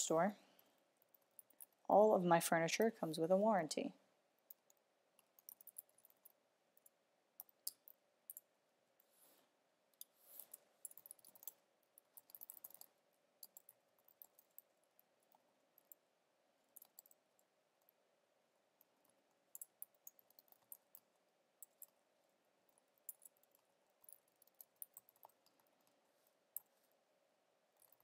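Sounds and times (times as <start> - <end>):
computer keyboard typing: 4.5 - 8.5, 10.4 - 16.0, 16.7 - 17.2, 18.9 - 22.0, 22.7 - 26.0.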